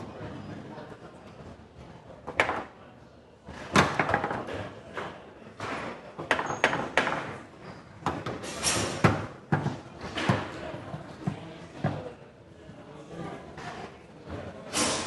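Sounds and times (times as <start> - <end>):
foosball ball and rods clacking: 2.3 - 2.8, 3.6 - 10.6.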